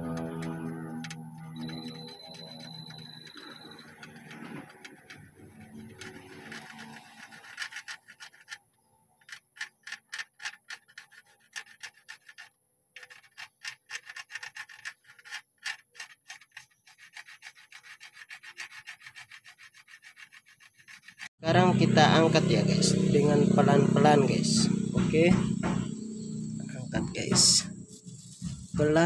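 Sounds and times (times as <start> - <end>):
pencil scratching on paper: 1.7 - 8.6, 9.6 - 21.3.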